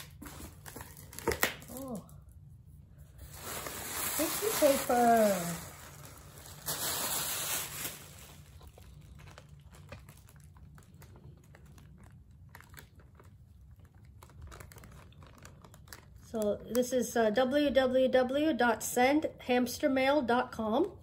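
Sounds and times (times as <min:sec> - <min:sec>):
tissue paper rustling: 0:03.0 - 0:12.0.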